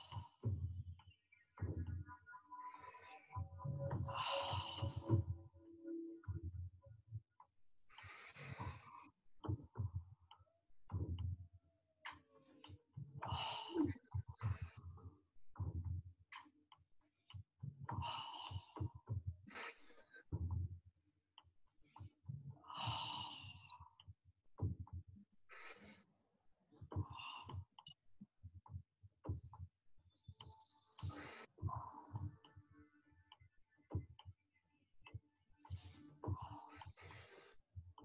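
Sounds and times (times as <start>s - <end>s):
woman breathing forcefully: 3.9s - 5.4s, 7.9s - 9.0s, 22.6s - 23.7s.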